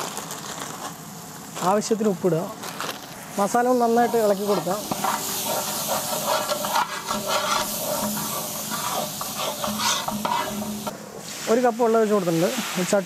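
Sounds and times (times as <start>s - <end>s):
masala sizzling in oil: 0.0s - 13.0s
spatula scraping metal pan: 4.0s - 10.9s.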